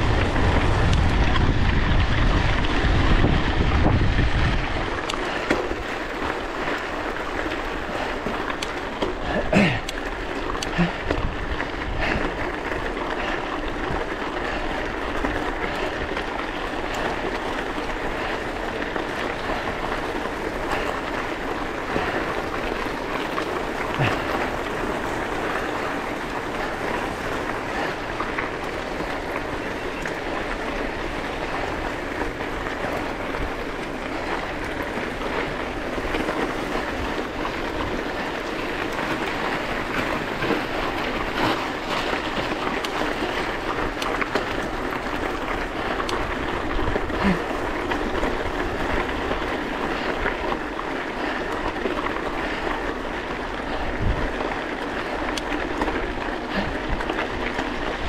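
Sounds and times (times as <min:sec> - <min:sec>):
wind on microphone: 0:00.0 - 0:05.1
bicycle tyres rolling on road: 0:00.0 - 0:58.0
small clicks and rattles: 0:00.0 - 0:58.0.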